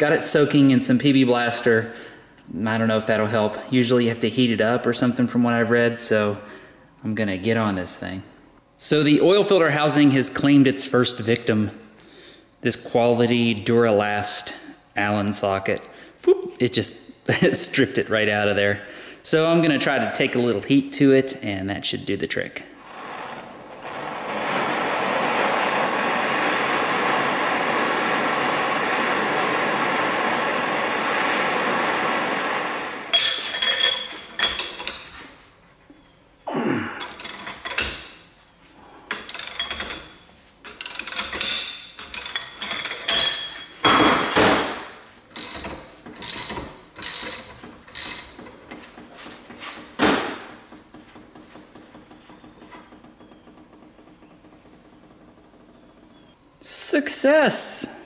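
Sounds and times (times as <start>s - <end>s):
ratchet clicking: 45.4s - 48.4s.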